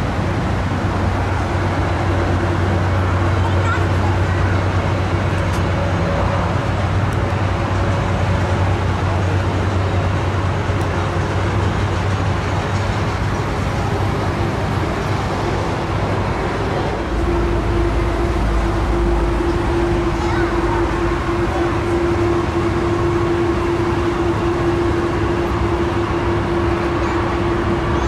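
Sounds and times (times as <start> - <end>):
deeper rumble: 0.0 - 28.0
tow tractor engine drone: 0.0 - 28.0
low hum: 4.5 - 28.0
steady mid-pitched tone: 13.0 - 28.0.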